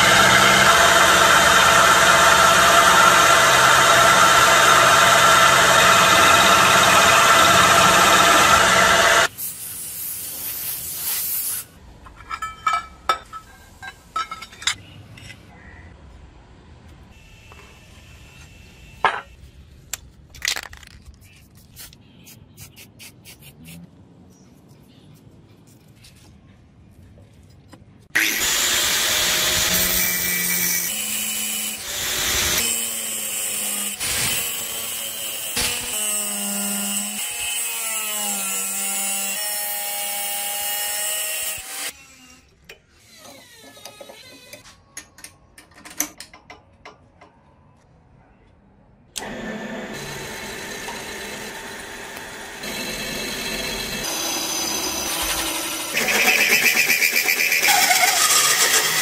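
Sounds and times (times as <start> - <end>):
angle grinder cutting steel: 0.0 - 9.3, 28.2 - 42.3, 49.2 - 59.0
drill press drilling steel: 0.0 - 9.3.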